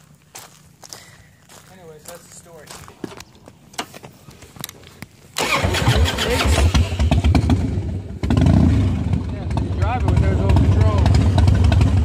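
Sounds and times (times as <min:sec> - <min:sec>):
motorcycle engine running: 0:05.4 - 0:12.0.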